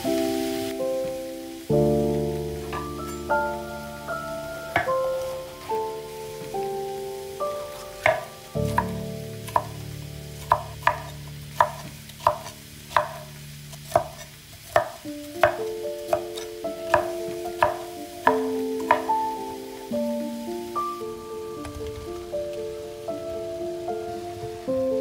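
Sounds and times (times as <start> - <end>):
soft background music: 0.0 - 25.0
knife chopping on wooden board: 8.0 - 9.8, 10.4 - 13.3, 13.9 - 19.1.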